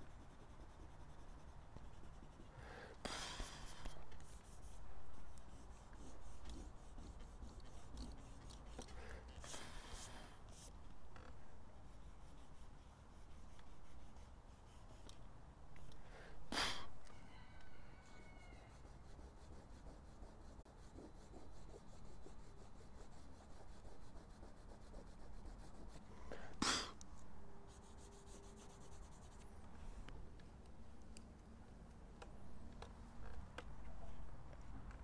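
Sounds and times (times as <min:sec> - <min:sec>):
tool scraping on paper: 0:03.2 - 0:10.7.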